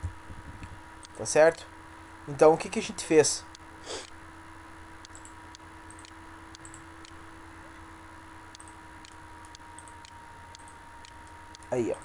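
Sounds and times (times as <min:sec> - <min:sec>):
steady low hum: 0:00.0 - 0:12.0
computer mouse clicking: 0:05.0 - 0:07.2, 0:08.5 - 0:11.7.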